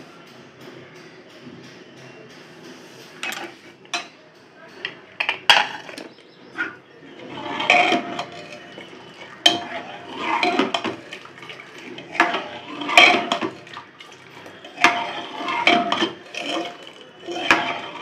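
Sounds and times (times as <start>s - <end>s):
ladle clinking against pot: 3.0s - 18.0s
liquid sloshing: 5.5s - 18.0s.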